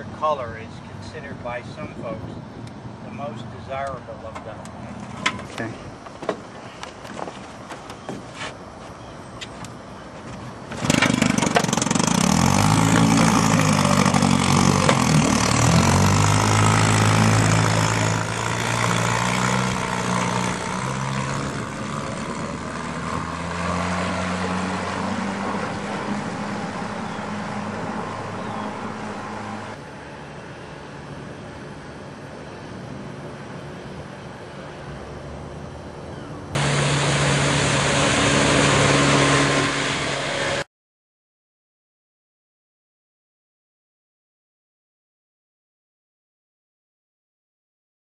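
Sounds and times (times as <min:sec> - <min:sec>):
outboard motor running: 0:10.7 - 0:32.6, 0:36.5 - 0:40.6.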